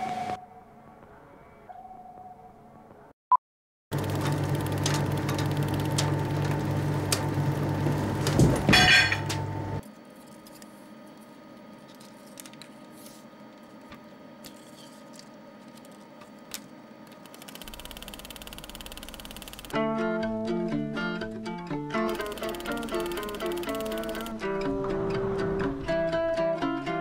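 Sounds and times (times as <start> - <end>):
film projector running: 3.9 - 8.5, 16.5 - 19.8, 22.1 - 24.4
steady mechanical hum: 4.0 - 19.8
small mechanism clicks: 16.5 - 19.8, 22.1 - 24.4
short rattling burst: 22.1 - 24.3.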